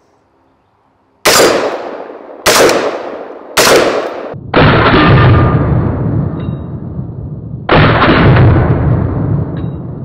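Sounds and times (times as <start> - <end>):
rifle shots echoing: 1.2 - 6.4, 7.7 - 9.5.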